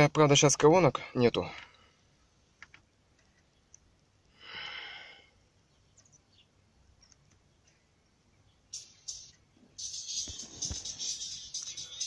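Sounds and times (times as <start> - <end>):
low background hiss: 0.0 - 12.0
faint clicks: 2.6 - 3.9
person exhaling: 4.3 - 5.4.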